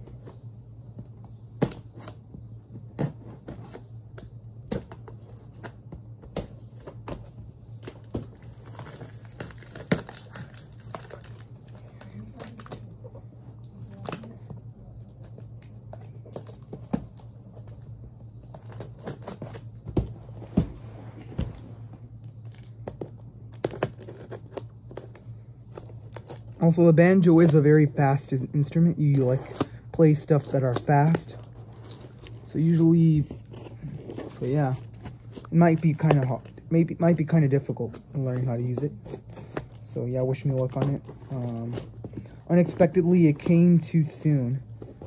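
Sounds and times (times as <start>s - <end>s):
steady low hum: 0.0s - 45.0s
cardboard and tape tearing: 7.8s - 13.0s, 18.5s - 20.0s, 22.4s - 25.2s, 29.0s - 36.5s.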